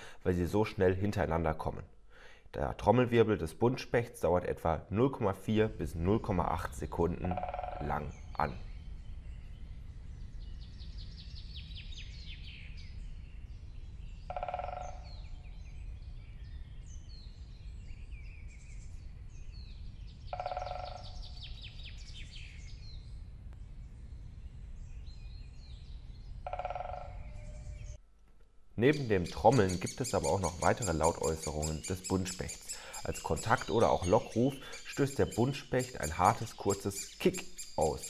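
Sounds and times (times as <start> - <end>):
songbirds singing: 4.4 - 28.0, 28.8 - 38.0
woodpecker drumming on wood: 7.3 - 8.2, 14.3 - 15.3, 20.3 - 21.6, 26.5 - 27.4.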